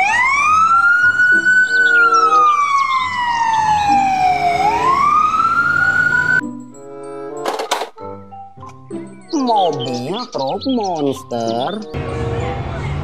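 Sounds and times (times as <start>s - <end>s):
ambulance siren wailing: 0.0s - 6.4s
faint music: 9.2s - 13.0s.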